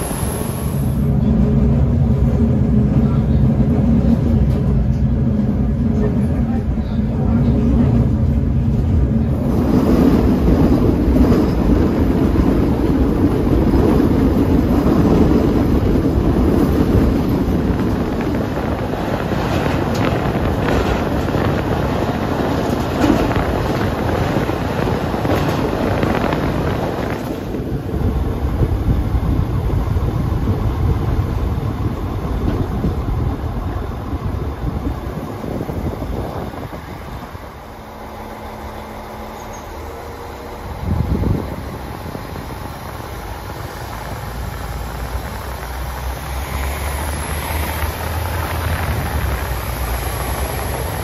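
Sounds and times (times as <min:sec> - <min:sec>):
train rumbling on track: 0:00.0 - 0:51.0
wind on microphone: 0:07.8 - 0:37.6, 0:40.7 - 0:51.0.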